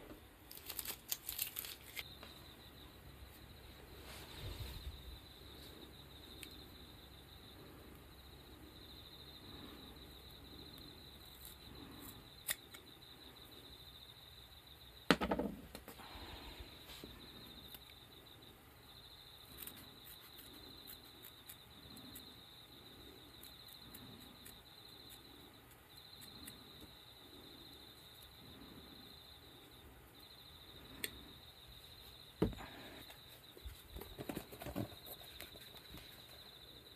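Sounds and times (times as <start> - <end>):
crickets chirping: 0.0 - 36.9
scissors snipping: 12.4 - 12.8.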